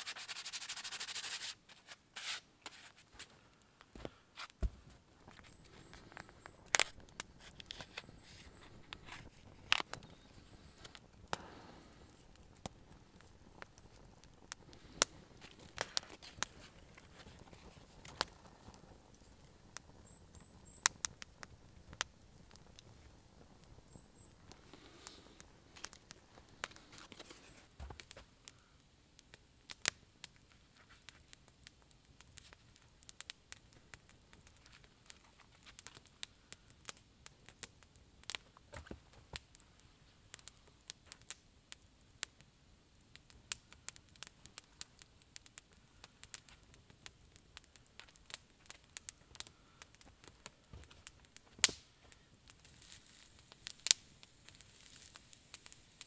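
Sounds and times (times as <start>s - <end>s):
campfire crackling: 0.0s - 56.0s
fire popping: 0.0s - 56.0s.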